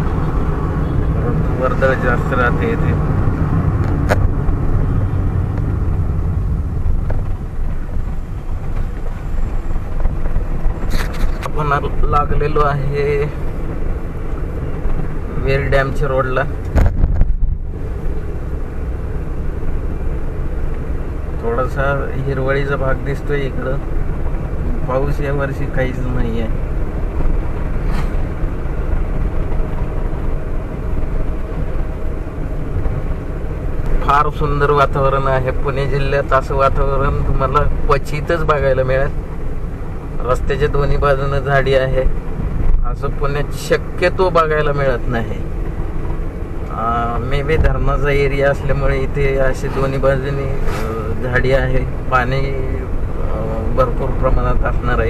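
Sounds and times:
car engine and road rumble: 0:00.0 - 0:55.0.

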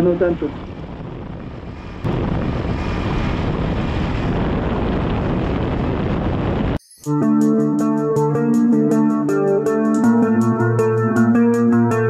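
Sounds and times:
wind noise on microphone: 0:00.0 - 0:06.8.

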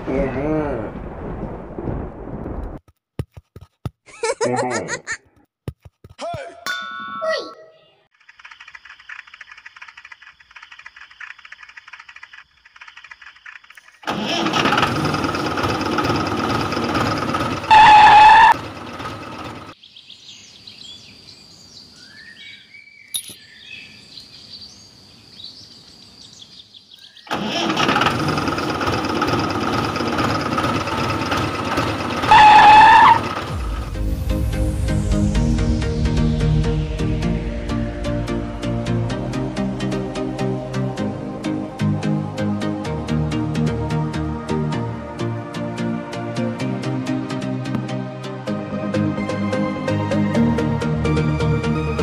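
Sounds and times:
birds chirping: 0:07.3 - 0:14.0, 0:19.6 - 0:27.4
tractor engine running: 0:08.1 - 0:19.8, 0:27.3 - 0:34.0
faint rapid ticking: 0:08.2 - 0:14.0
loud honk-like tone: 0:17.7 - 0:18.6, 0:32.2 - 0:33.3.

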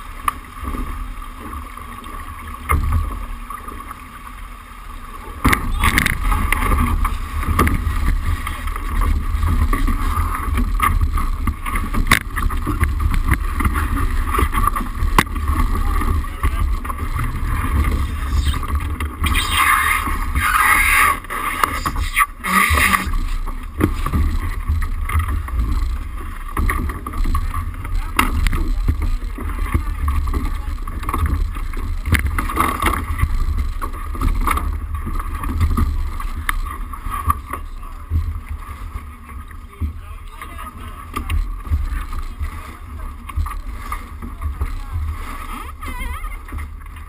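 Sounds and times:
water rushing along boat hull: 0:00.0 - 0:47.0
wind buffeting microphone: 0:05.6 - 0:36.1
crew voices calling out: 0:17.0 - 0:23.4, 0:45.4 - 0:46.6.

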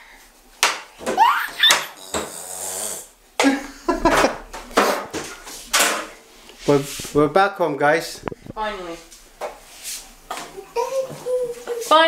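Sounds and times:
toddler squealing and babbling: 0:01.1 - 0:02.3
toddler laughing: 0:01.2 - 0:02.3, 0:10.4 - 0:11.9.

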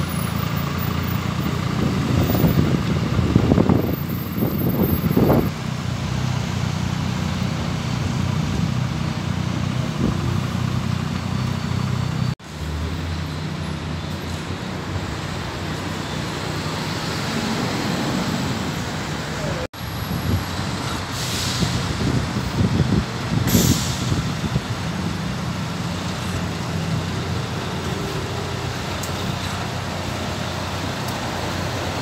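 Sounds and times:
bus engines running: 0:00.0 - 0:32.0
steady traffic noise: 0:00.0 - 0:32.0.

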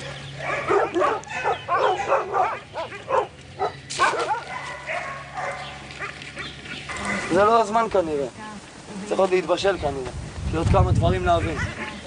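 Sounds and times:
dogs barking and yelping: 0:00.0 - 0:07.7, 0:11.3 - 0:12.0.

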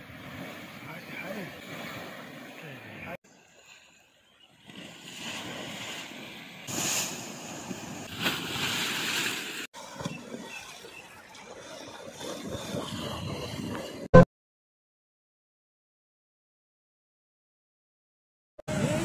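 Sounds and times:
river water churning and splashing: 0:00.0 - 0:14.2
wind on microphone: 0:12.2 - 0:14.2, 0:18.7 - 0:19.0.

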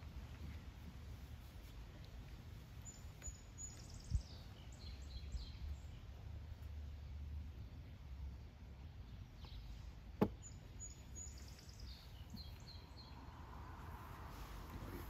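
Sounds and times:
low outdoor rumble: 0:00.0 - 0:15.0
bird chirping: 0:02.8 - 0:06.2, 0:09.0 - 0:13.8.

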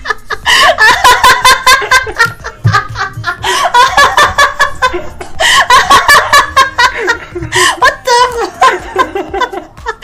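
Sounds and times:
woman laughing: 0:00.0 - 0:10.0.

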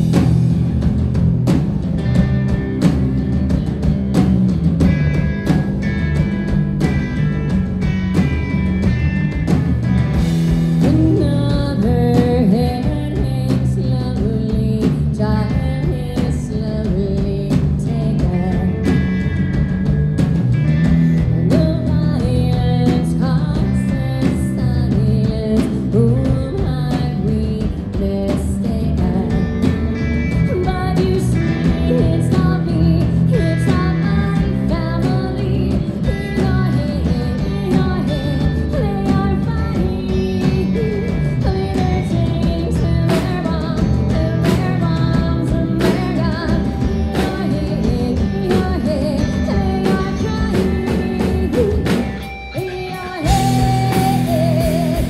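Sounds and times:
band playing live: 0:00.0 - 0:55.0
drums: 0:00.0 - 0:55.0
woman singing into a microphone: 0:10.8 - 0:19.1, 0:21.1 - 0:55.0.

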